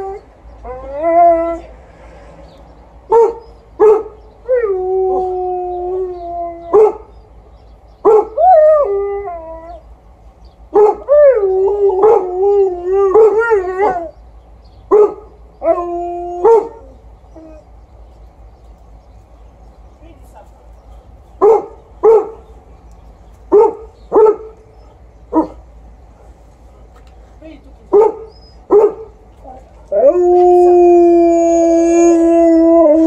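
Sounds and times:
dog barking: 21.4s - 22.4s, 23.5s - 24.5s, 27.9s - 29.1s
dog howling: 29.9s - 33.0s.

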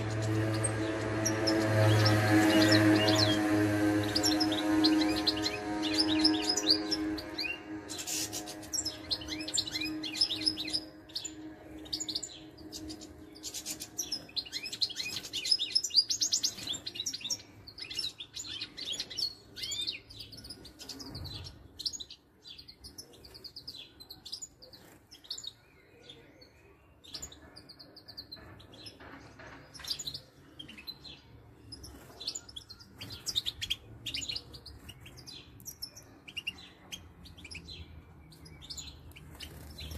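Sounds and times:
music: 0.0s - 16.7s
goldfinches chirping and twittering: 0.0s - 39.9s.

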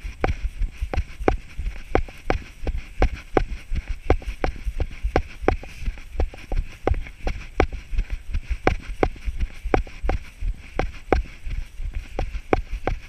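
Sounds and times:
running footsteps on grass: 0.0s - 13.0s.

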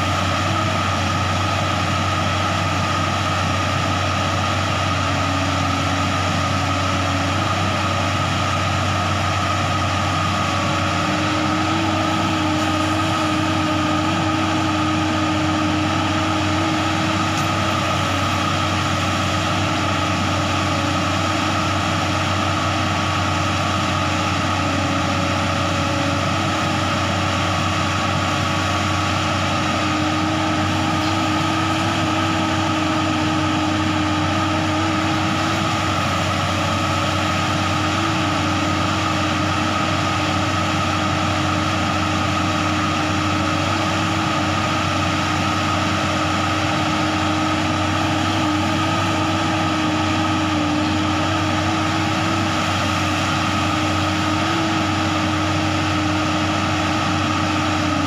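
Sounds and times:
excavator diesel engine running: 0.0s - 58.0s
hydraulic whine: 0.0s - 58.0s.

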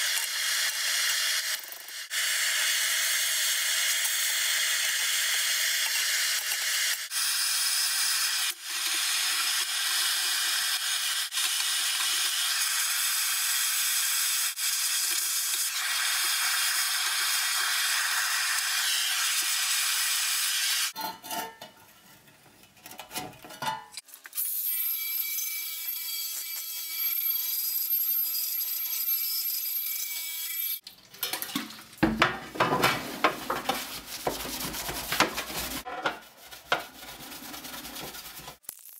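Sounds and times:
cloth rubbing metal dustpan: 32.7s - 38.6s.

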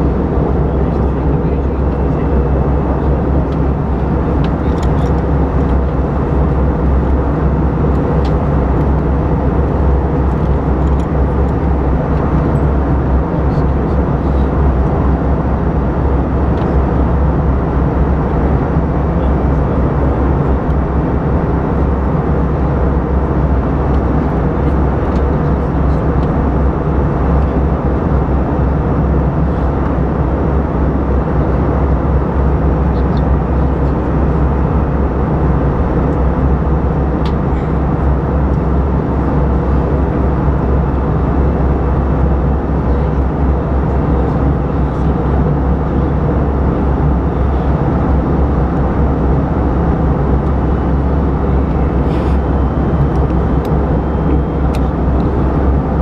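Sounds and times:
airplane cabin roar: 0.0s - 56.0s.

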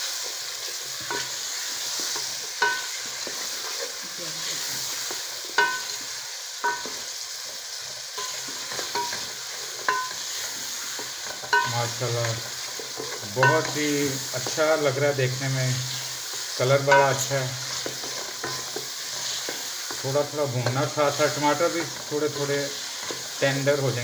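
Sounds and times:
frying sizzle: 0.0s - 24.0s
wooden spoon stirring and scraping: 0.1s - 24.0s
spoon knocking metal pot: 2.6s - 3.0s, 5.6s - 6.0s, 6.6s - 7.0s, 8.2s - 9.3s, 9.9s - 10.2s, 11.3s - 11.8s, 13.4s - 13.8s.

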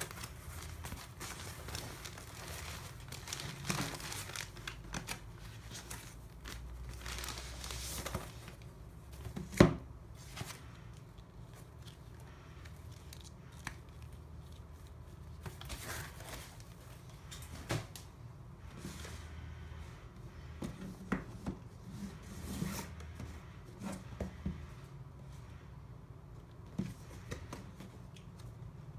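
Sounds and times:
plastic bag and foam rustling: 0.0s - 9.5s.

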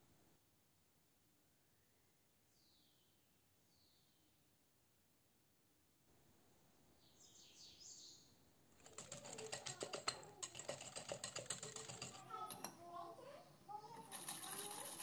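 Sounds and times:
whisk clicking against glass bowl: 8.8s - 12.7s.

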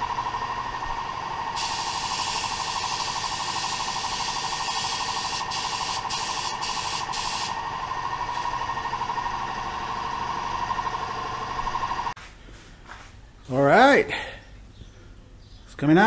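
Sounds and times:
air whistling through spray gun: 1.6s - 7.6s
spray gun hissing: 1.6s - 7.6s.

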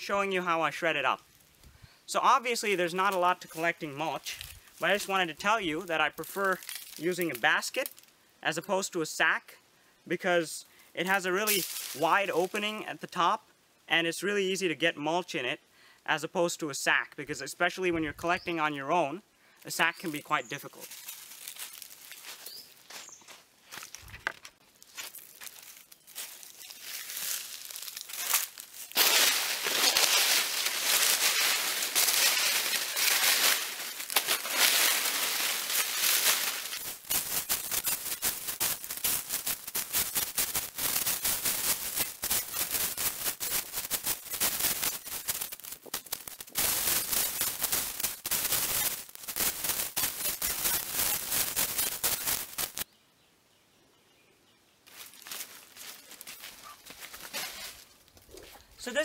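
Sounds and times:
dry leaves crackling and rustling: 2.3s - 5.2s, 6.0s - 8.1s, 11.3s - 12.8s, 20.0s - 52.9s, 54.9s - 58.2s.

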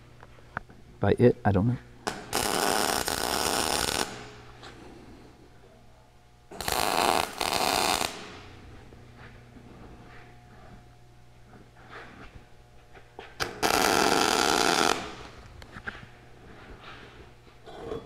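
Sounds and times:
welder crackling buzz: 2.0s - 4.6s, 6.5s - 8.8s, 13.4s - 15.7s.

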